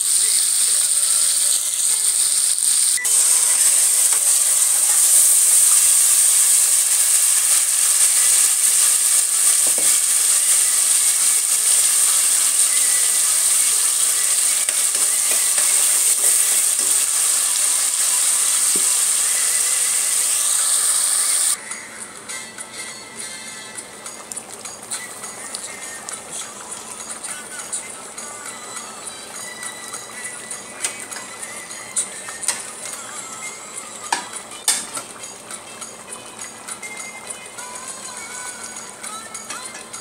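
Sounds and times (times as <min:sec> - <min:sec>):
hot oil sizzling: 0:00.0 - 0:21.6.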